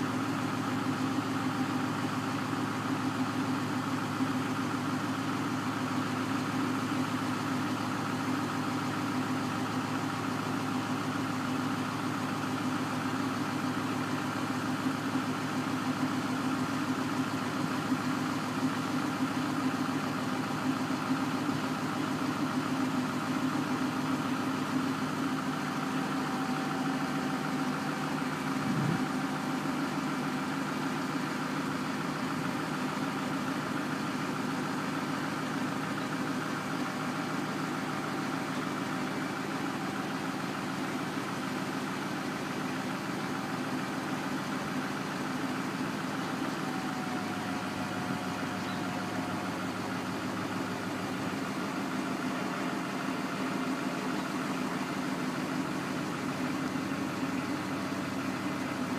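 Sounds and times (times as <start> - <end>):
diesel engine idling: 0.0 - 58.9.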